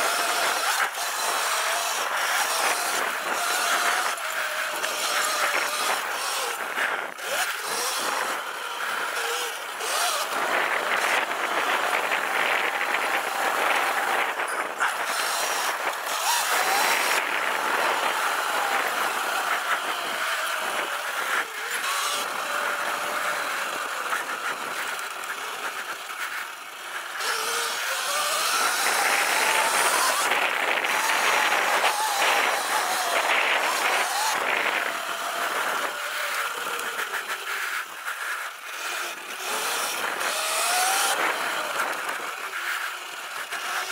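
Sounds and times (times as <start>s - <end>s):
electric motor whine: 0.0s - 43.9s
steady rushing noise: 0.0s - 43.9s.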